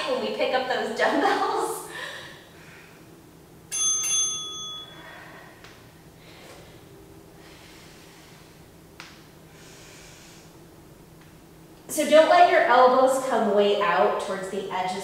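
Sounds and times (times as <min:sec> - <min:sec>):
timer bell chiming: 0:03.7 - 0:05.2.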